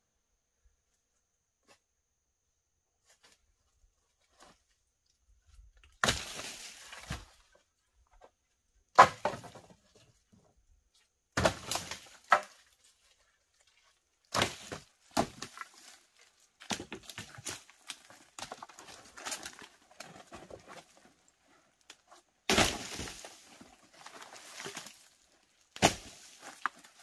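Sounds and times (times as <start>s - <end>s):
wooden logs knocking and cracking: 5.4s - 10.6s, 11.3s - 13.3s, 14.3s - 27.0s.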